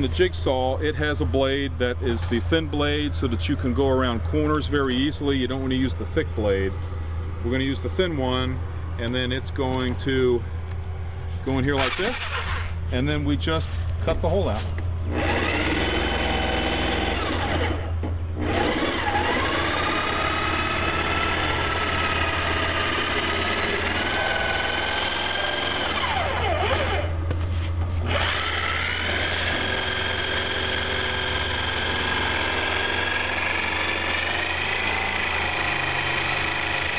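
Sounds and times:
jigsaw cutting plastic: 0:11.8 - 0:12.7, 0:15.1 - 0:27.1, 0:28.0 - 0:36.9.

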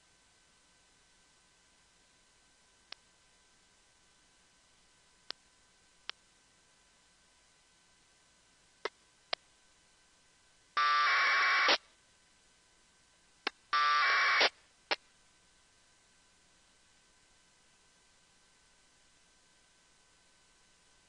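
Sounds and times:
harsh two-tone data bursts: 0:10.8 - 0:11.8, 0:13.8 - 0:14.5.

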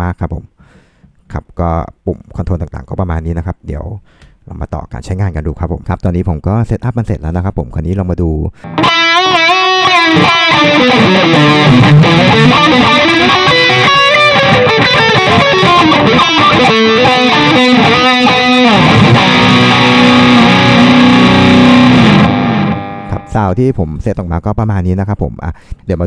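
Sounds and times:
distorted electric guitar lead: 0:08.6 - 0:23.4.

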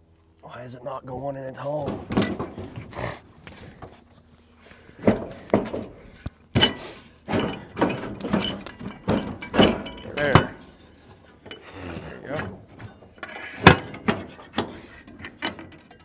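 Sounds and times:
metal scraping and knocking on metal: 0:01.8 - 0:02.9, 0:05.0 - 0:16.0.

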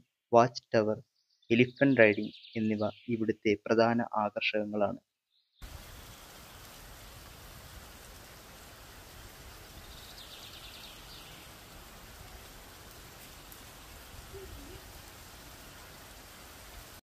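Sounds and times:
heavy rain on water: 0:05.6 - 0:17.0.

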